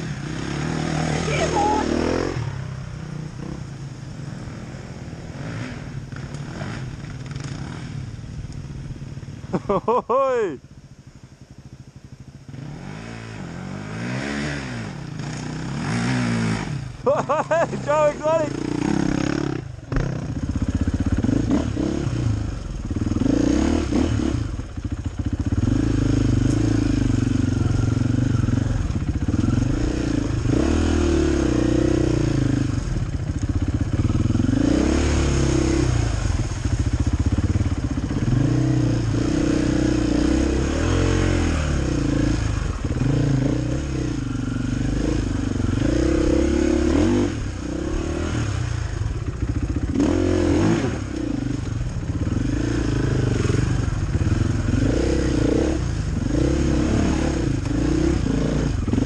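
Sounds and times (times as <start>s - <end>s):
motorcycle engine revving: 0.0s - 10.6s, 11.3s - 59.0s.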